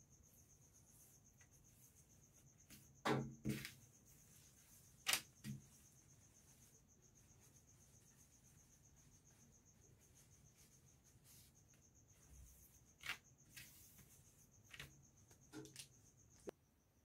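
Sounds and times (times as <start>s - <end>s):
cricket chirping: 0.0s - 17.0s
fabric rustling: 3.5s - 15.0s.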